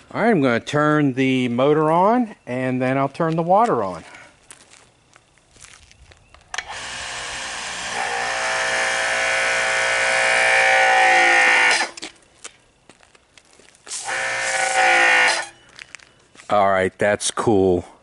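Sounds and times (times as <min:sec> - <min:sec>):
pressure washer motor whining: 0:06.6 - 0:12.1, 0:13.9 - 0:15.6.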